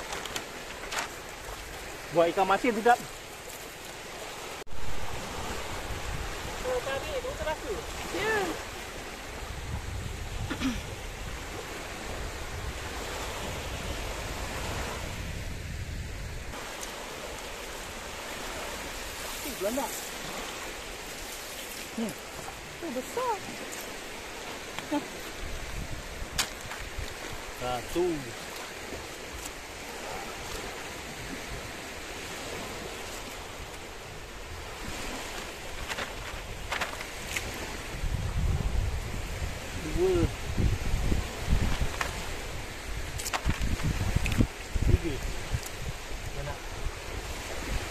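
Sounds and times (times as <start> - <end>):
sea surf: 0.0 - 47.9
small waves breaking on shore: 0.0 - 47.9
wind noise: 4.3 - 47.9.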